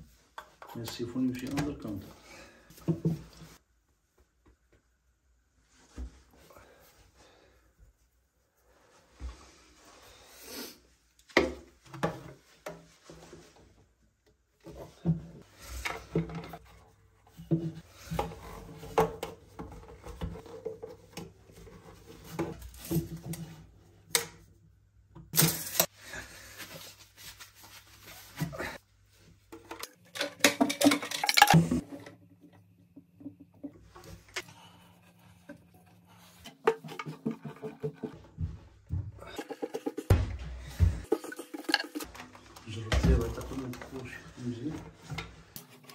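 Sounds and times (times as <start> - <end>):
plastic pipes clicking and knocking: 14.9 - 24.5, 29.5 - 34.5, 35.4 - 44.0.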